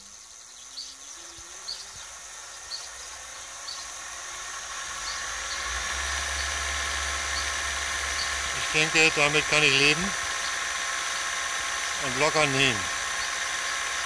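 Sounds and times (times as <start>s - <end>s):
low hum: 0.0s - 14.0s
motor whine rising in pitch: 0.0s - 14.0s.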